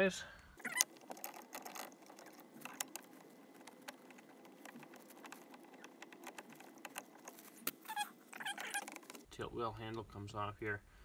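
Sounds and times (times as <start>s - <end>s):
low steady hiss: 9.2s - 11.0s.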